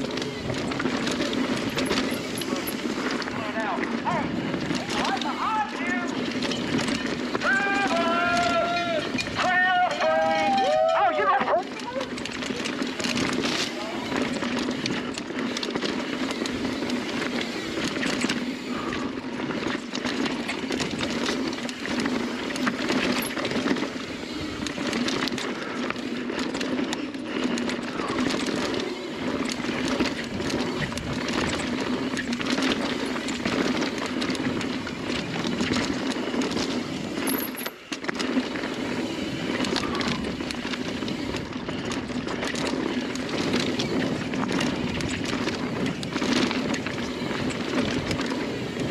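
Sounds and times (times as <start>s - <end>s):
bike rattling and clinking: 0.0s - 48.9s
bike tyres rolling over dirt and rocks: 0.0s - 48.9s.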